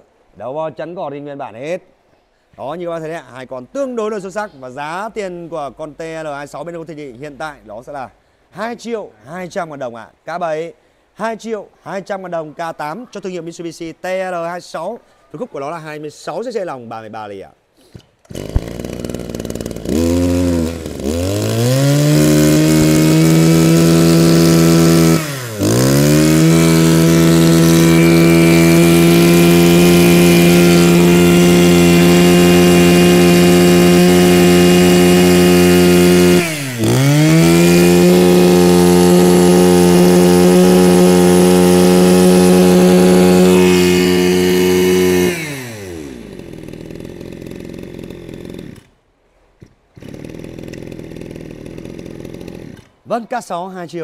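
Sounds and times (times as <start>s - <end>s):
brush cutter engine revving: 17.9s - 49.0s, 49.6s - 53.1s.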